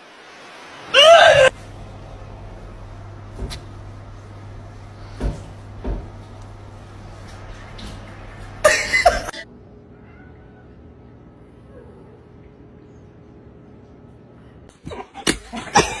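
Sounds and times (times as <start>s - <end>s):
cat yowling: 0.9s - 1.5s
dull thumps: 3.1s - 6.7s.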